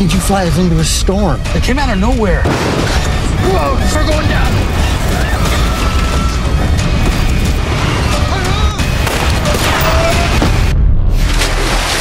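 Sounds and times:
loud dramatic music: 0.0s - 12.0s
booming crash and impact effects: 2.4s - 12.0s.

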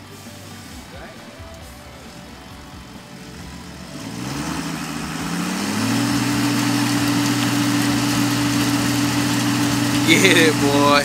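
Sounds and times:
tree shaker engine revving: 0.0s - 11.0s.

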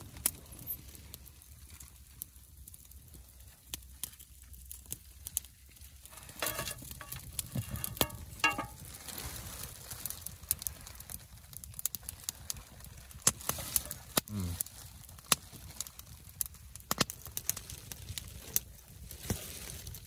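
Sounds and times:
wood fire crackling: 0.0s - 20.0s
utensil scraping metal plate: 6.1s - 8.8s.

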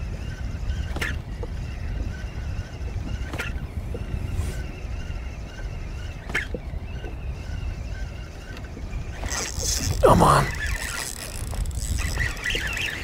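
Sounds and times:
spinning reel whirring: 0.0s - 13.0s
wind rumbling on microphone: 0.0s - 13.0s.

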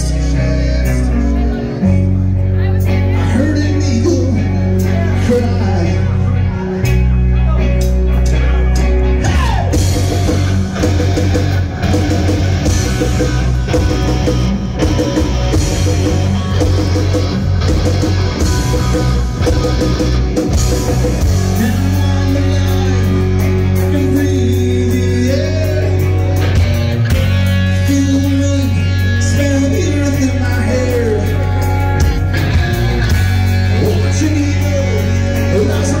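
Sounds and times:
bass guitar: 0.0s - 36.0s
electric guitar: 0.0s - 36.0s
drum kit: 7.8s - 36.0s.

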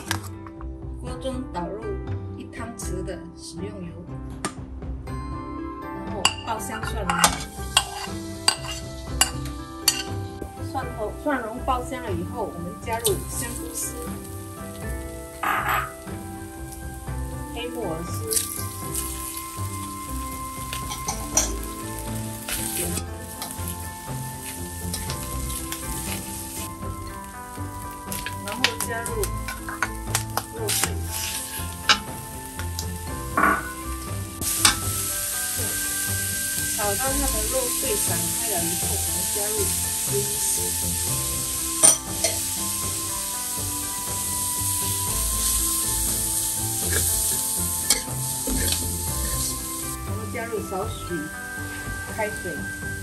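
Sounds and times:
soft background music: 0.0s - 53.0s
metal spatula scraping wok: 7.1s - 10.4s, 12.9s - 16.9s, 17.5s - 50.0s
vegetables sizzling in oil: 7.2s - 53.0s
metal spatula scraping a wok: 7.4s - 10.3s, 15.4s - 16.0s, 18.3s - 26.8s, 29.3s - 32.1s, 41.5s - 42.4s, 46.8s - 49.7s.

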